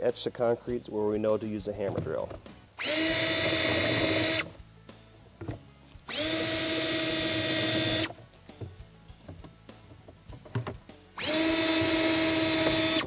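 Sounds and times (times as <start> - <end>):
cordless drill spinning: 2.8 - 4.6, 6.1 - 8.2, 11.2 - 13.0.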